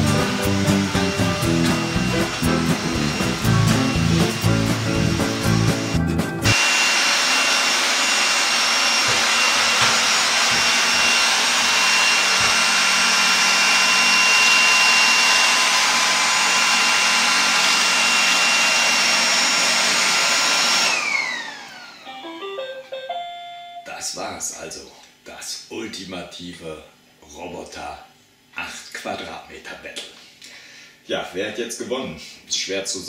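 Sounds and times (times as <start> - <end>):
robot vacuum whirring: 0.4 - 22.3.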